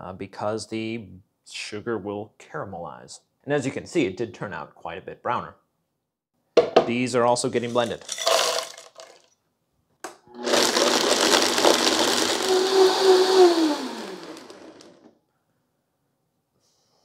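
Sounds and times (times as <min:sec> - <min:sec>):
blender motor running: 0:10.3 - 0:15.1.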